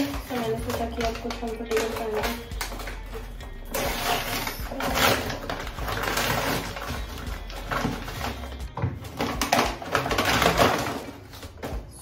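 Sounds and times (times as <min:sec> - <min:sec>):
paper bag rustling and crinkling: 0:00.0 - 0:12.0.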